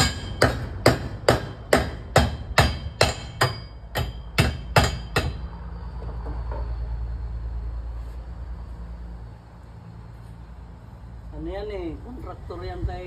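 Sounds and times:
hammer striking nails: 0.0 - 5.4.

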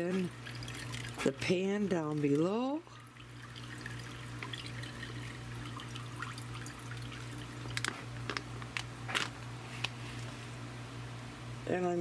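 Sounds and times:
juices pouring and dripping: 0.0 - 9.3
steady low hum: 0.0 - 12.0.

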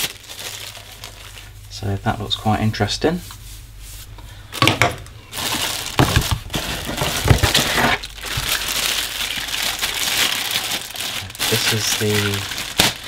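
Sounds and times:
plastic bags crinkling: 0.0 - 1.6, 4.5 - 13.0.

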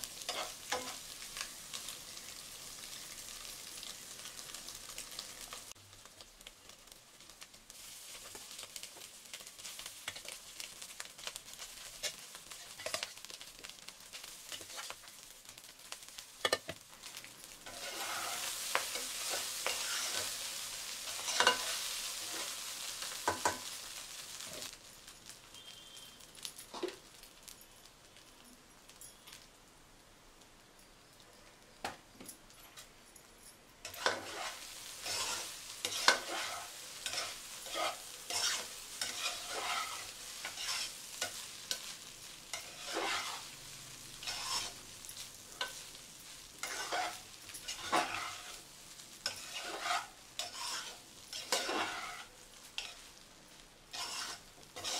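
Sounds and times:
food sizzling: 0.0 - 54.9
spatula scraping pot: 17.7 - 20.3, 33.9 - 41.0, 42.5 - 43.4, 44.2 - 44.8, 46.6 - 48.6, 49.2 - 53.0, 53.9 - 54.9.

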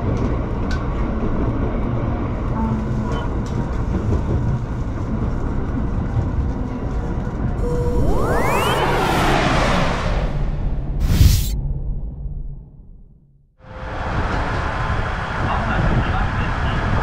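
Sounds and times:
train wheels rumbling on rails: 0.0 - 7.5
rising whoosh effect: 7.6 - 12.5.

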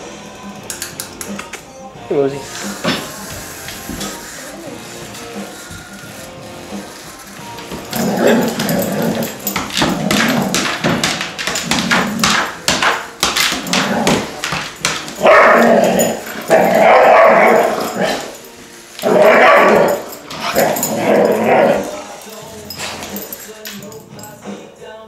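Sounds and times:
dog barking: 15.2 - 18.4, 19.0 - 22.0.

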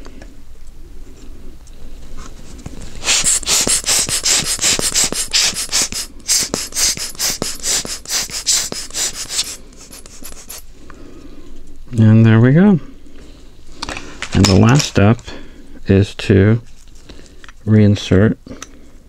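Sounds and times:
rubber air blower puffing: 2.7 - 10.7.

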